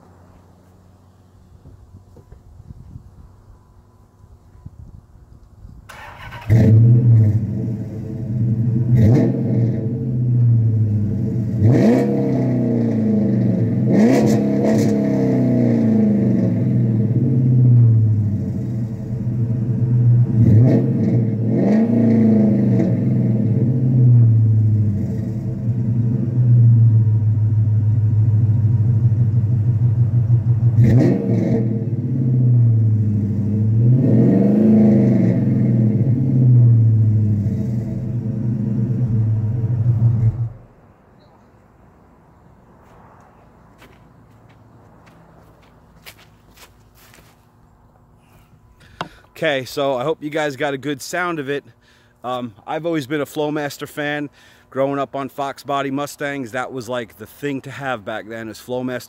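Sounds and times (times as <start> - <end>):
engine throttle blips: 1.6 - 41.4
car engine starting and idling: 5.8 - 41.0.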